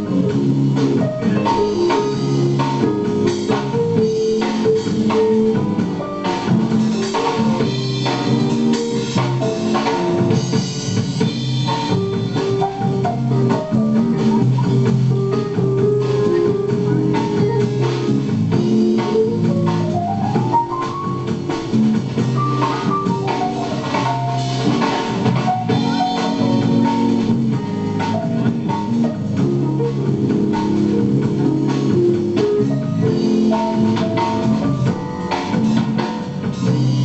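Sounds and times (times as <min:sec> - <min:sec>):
drum kit: 0:00.0 - 0:37.0
guitar: 0:00.0 - 0:37.0
jazz band playing: 0:00.0 - 0:37.0
keyboard: 0:00.0 - 0:37.0.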